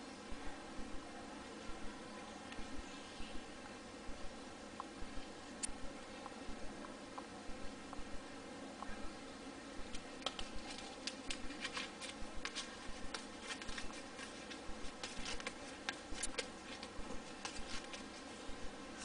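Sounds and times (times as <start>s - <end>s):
paper banknote crinkling: 9.9s - 18.4s.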